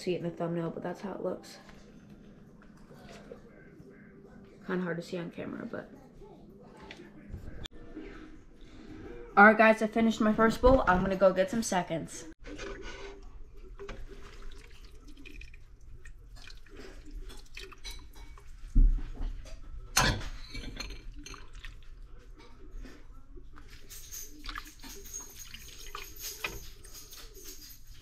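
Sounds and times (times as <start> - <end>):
ladle scraping pot: 12.4 - 15.6, 23.6 - 27.9
broth splashing and dripping: 13.8 - 18.4.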